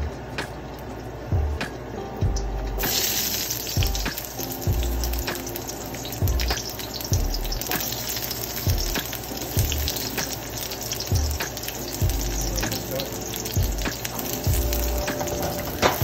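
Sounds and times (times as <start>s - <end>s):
background music with steady beat: 0.0s - 16.0s
oil sizzling in a wok: 2.7s - 16.0s.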